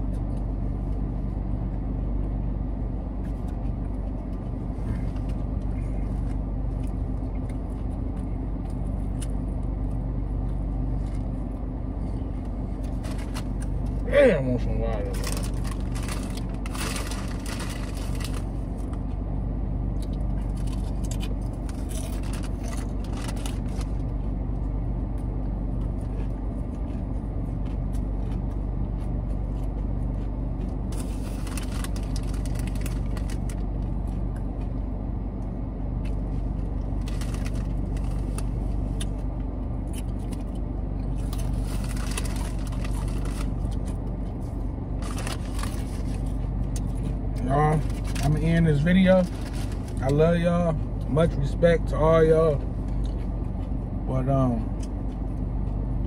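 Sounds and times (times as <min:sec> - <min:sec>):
car engine idling: 0:00.0 - 0:56.0
plastic bottle and chip bag crinkling: 0:15.0 - 0:18.9, 0:20.5 - 0:24.0, 0:30.9 - 0:33.6, 0:37.0 - 0:38.6, 0:41.2 - 0:44.0, 0:45.0 - 0:46.4, 0:47.7 - 0:48.5.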